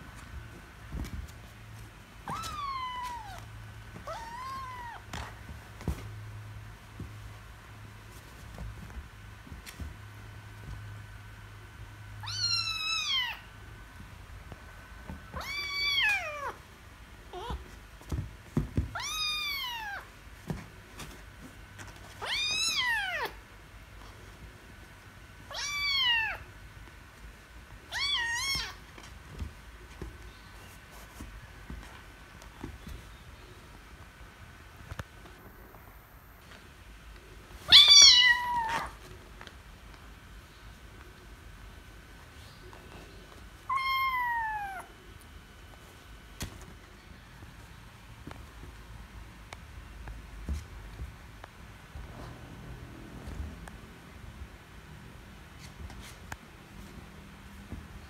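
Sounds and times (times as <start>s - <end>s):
kitten meowing: 4.1s - 5.0s, 37.7s - 38.9s, 43.7s - 44.9s
kitten meowing loudly: 43.7s - 44.9s.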